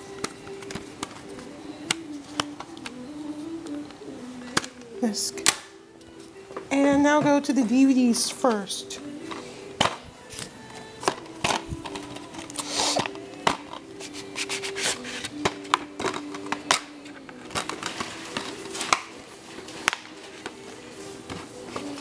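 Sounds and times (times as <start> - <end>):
plastic cases clicking and knocking: 9.2 - 13.9, 15.3 - 19.2.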